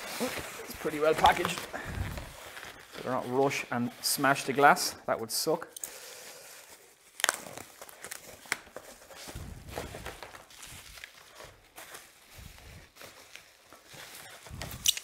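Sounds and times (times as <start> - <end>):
packaging rustling and crinkling: 0.0 - 4.8, 5.9 - 15.0.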